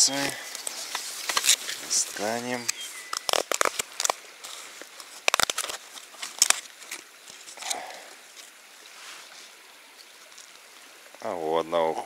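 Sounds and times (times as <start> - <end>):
shallow stream babbling: 0.0 - 12.0
sharp clicks and rustles: 0.5 - 7.8.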